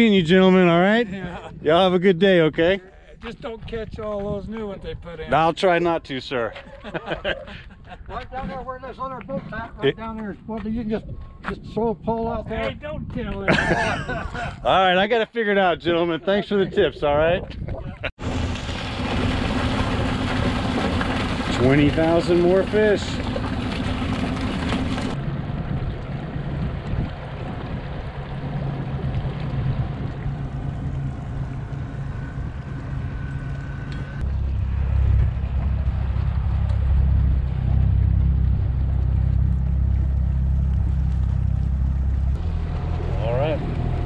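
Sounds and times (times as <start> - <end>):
motorboat engine running: 18.2 - 44.0.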